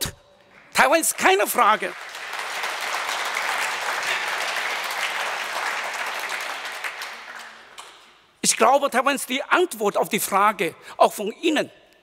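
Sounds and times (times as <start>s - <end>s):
audience applauding: 0.4s - 8.1s.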